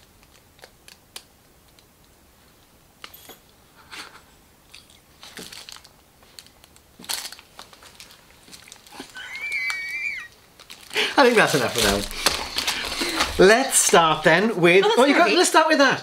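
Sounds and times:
plastic packaging crinkling: 0:05.0 - 0:14.3.

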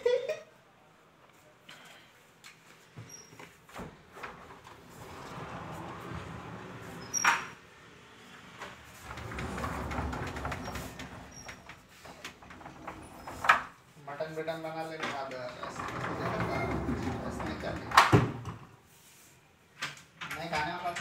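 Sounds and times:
wooden doors rolling on tracks: 0:04.1 - 0:07.6, 0:08.4 - 0:13.8, 0:15.1 - 0:18.7.

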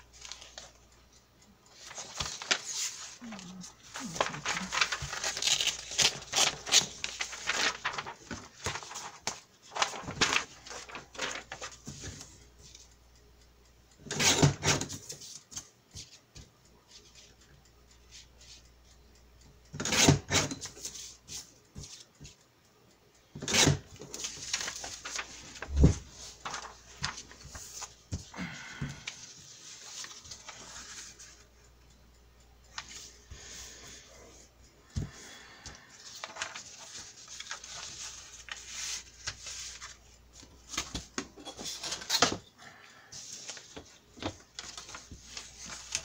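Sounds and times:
paper rustling: 0:00.2 - 0:00.7, 0:01.7 - 0:12.8, 0:23.6 - 0:28.3, 0:29.0 - 0:31.4, 0:35.9 - 0:42.4, 0:43.2 - 0:46.0.

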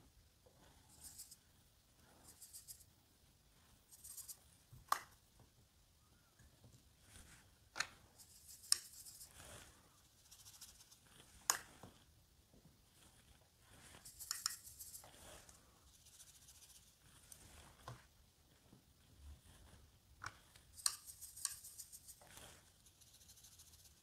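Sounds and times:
paintbrush swishing on paper: 0:00.7 - 0:01.4, 0:02.0 - 0:02.9, 0:03.5 - 0:04.6, 0:08.1 - 0:12.1, 0:12.9 - 0:19.9, 0:20.6 - 0:24.0.

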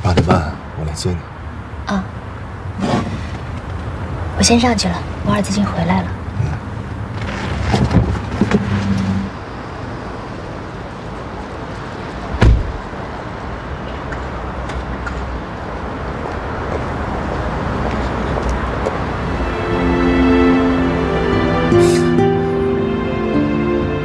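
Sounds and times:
low car and street noise: 0:00.0 - 0:24.0
car door shutting: 0:12.3 - 0:12.9.

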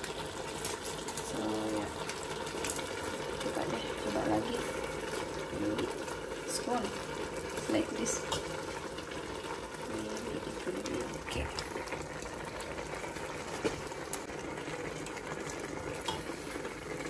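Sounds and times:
porridge boiling and bubbling: 0:00.0 - 0:17.0.

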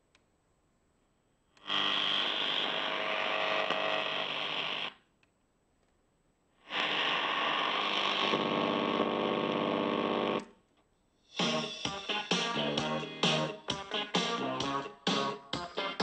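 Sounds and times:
radio static and hum: 0:06.7 - 0:10.4.

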